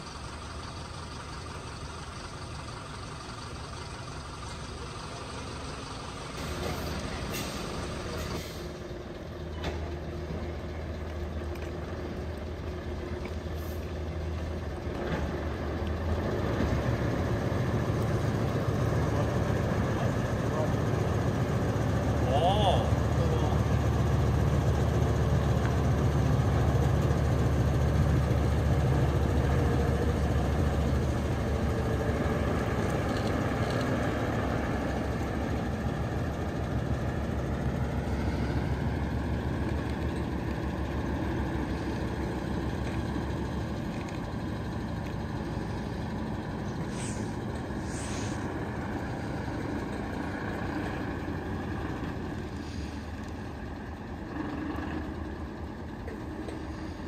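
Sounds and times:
truck diesel engine rumbling: 0.0 - 57.0
brief air hisses: 46.8 - 48.6.

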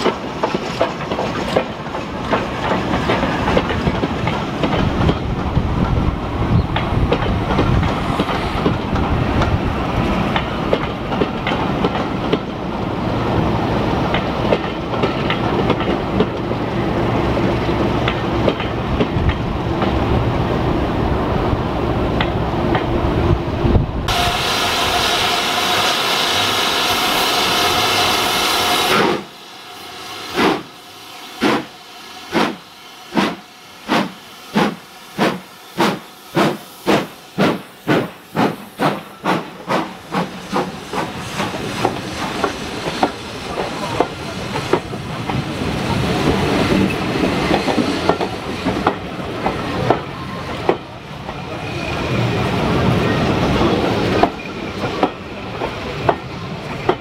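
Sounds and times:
train wheels clattering: 0.0 - 12.6, 14.1 - 16.6, 31.4 - 31.7, 32.3 - 52.3
steam locomotive whistle: 24.1 - 33.8.

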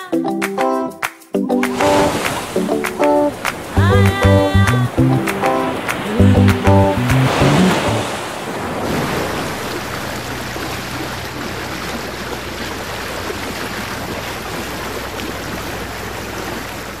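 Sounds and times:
rushing water: 1.6 - 17.0.

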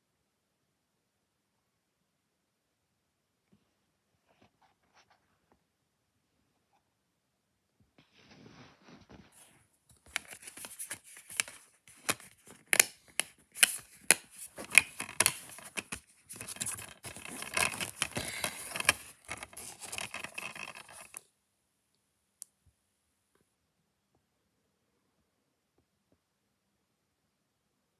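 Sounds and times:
plastic case clicks and scrapes: 10.1 - 21.2.

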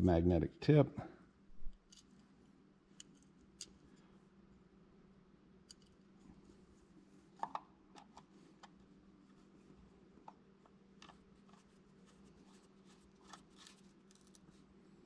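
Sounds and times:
faint steady hum: 0.0 - 15.0
screwdriver clicking and scraping: 12.6 - 14.5.

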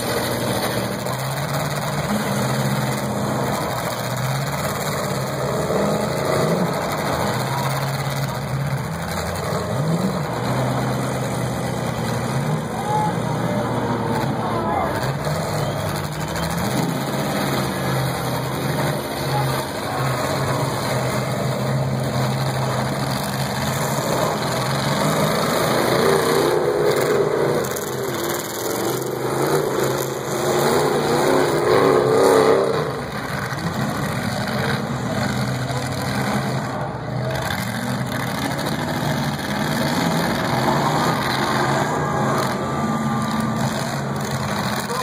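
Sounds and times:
car engines revving: 0.0 - 45.0.

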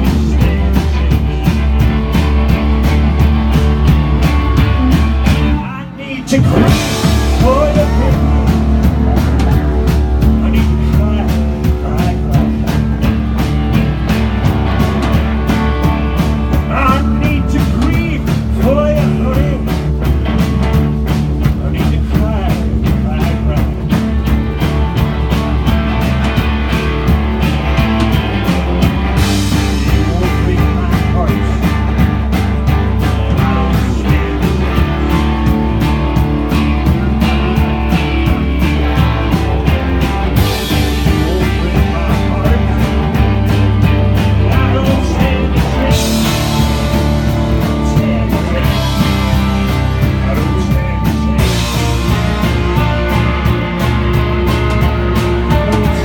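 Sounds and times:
person singing: 0.0 - 1.8, 3.7 - 13.6, 14.7 - 19.9, 28.3 - 56.0
rock band playing live: 0.0 - 56.0.

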